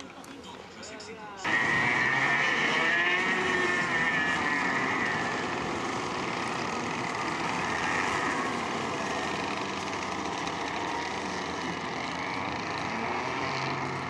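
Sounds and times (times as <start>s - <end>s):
go-kart engines running hard: 1.4s - 14.0s.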